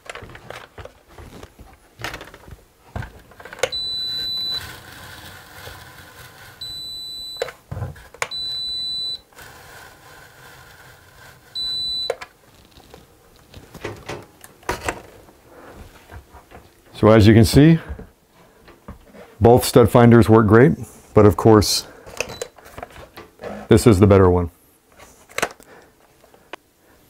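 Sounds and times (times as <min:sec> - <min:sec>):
stud finder beeps: 0:03.6 - 0:04.8, 0:06.6 - 0:07.6, 0:08.2 - 0:09.3, 0:11.6 - 0:12.2, 0:22.2 - 0:22.6.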